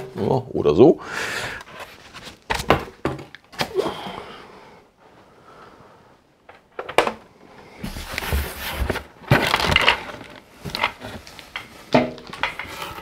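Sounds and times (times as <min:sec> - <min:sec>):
cardboard rustling and scraping: 0:01.7 - 0:02.9, 0:07.8 - 0:13.0.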